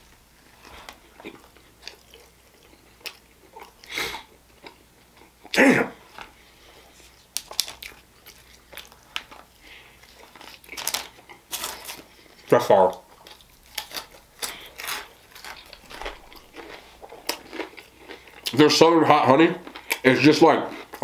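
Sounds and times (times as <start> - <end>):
chewing and biting: 0.6 - 5.6, 7.0 - 18.6.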